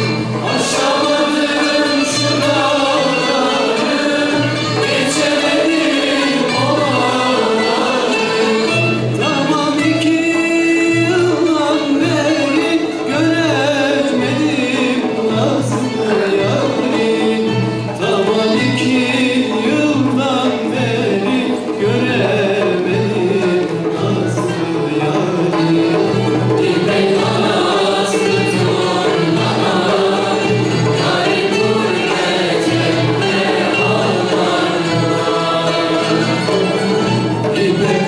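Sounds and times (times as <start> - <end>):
music ensemble accompanying: 0.0 - 38.0
man singing folk song: 6.6 - 26.3.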